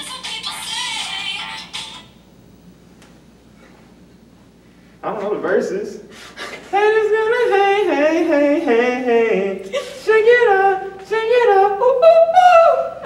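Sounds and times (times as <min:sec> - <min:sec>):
person singing unaccompanied: 0:06.7 - 0:13.0.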